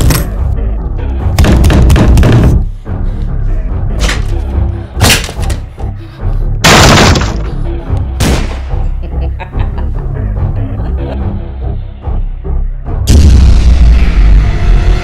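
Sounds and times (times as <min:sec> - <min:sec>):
dramatic background music: 0:00.0 - 0:15.0
gunshot bangs: 0:06.6 - 0:07.4.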